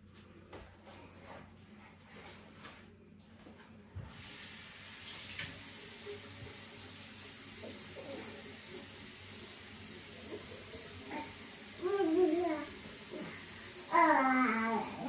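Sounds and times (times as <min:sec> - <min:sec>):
water running from tap: 0:04.1 - 0:15.0.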